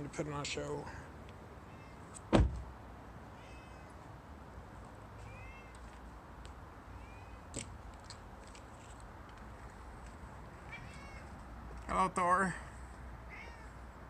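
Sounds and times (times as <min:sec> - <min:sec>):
cat meowing faintly: 0:01.6 - 0:02.1, 0:03.4 - 0:04.0, 0:05.2 - 0:05.8, 0:10.7 - 0:11.3, 0:13.3 - 0:13.8
loud thump: 0:02.3 - 0:02.6.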